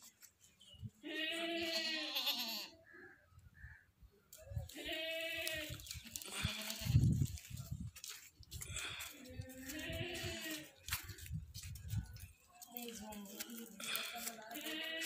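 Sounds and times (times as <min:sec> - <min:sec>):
goat bleating: 0:01.0 - 0:02.8, 0:04.7 - 0:07.1, 0:09.6 - 0:10.7, 0:14.0 - 0:15.0.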